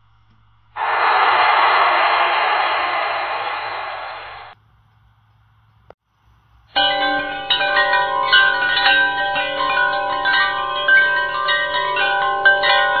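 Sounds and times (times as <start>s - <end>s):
chiming bell-like music: 6.7s - 13.0s.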